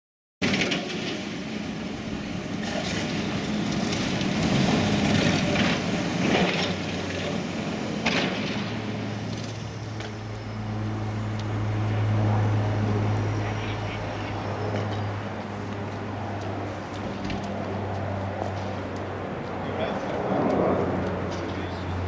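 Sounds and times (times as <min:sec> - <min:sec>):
rubble crunching under steel tracks: 0:00.4 - 0:11.5
excavator diesel engine running: 0:01.4 - 0:22.0.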